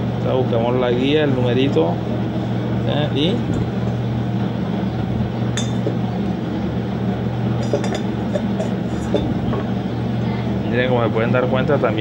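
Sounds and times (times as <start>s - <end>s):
steady low hum: 0.0s - 12.0s
piston ring clinking in cylinder: 5.6s - 6.0s, 7.6s - 9.4s.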